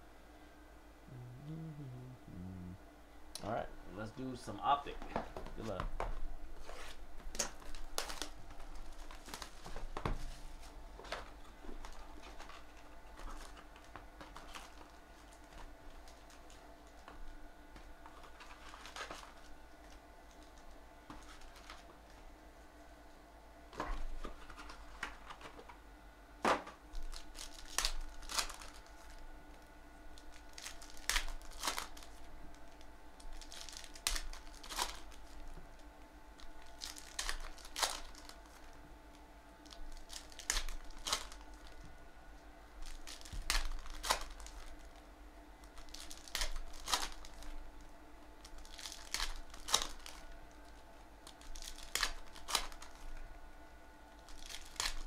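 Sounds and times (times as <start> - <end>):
faint steady hum: 0.0 - 55.0
foil packs tearing and crinkling: 6.6 - 17.1, 18.1 - 20.6, 21.2 - 21.9, 27.0 - 29.2, 30.2 - 35.6, 36.4 - 38.8, 39.6 - 41.8, 42.8 - 45.0, 45.6 - 47.6, 48.4 - 53.2, 54.2 - 55.0.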